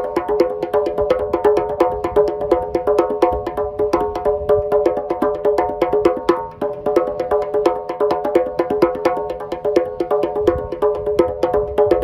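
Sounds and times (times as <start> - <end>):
djembes played by hand: 0.0 - 12.0.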